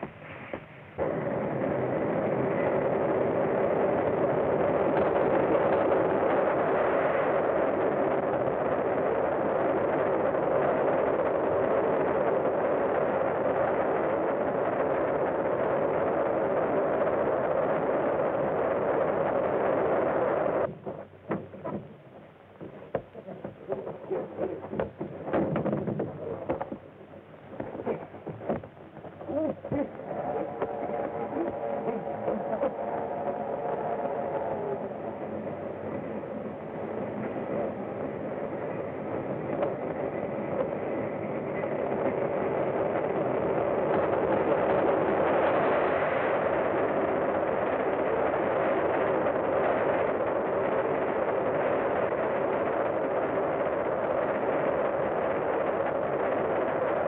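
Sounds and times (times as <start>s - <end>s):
scattered knocks: 20.7s - 22.0s, 24.6s - 26.8s
steam locomotive rumbling: 20.7s - 53.0s.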